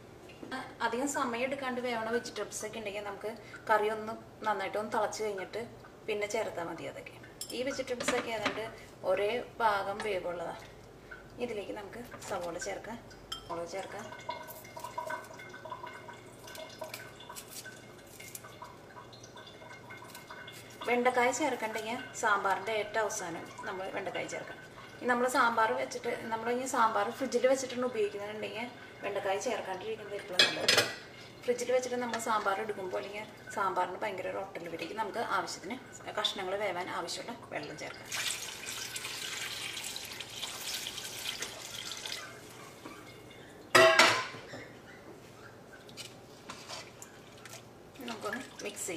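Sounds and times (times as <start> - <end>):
gravy bubbling and popping: 12.7 - 25.3
water splashing into pan: 38.0 - 44.3
knife scraping into pan: 46.4 - 47.0.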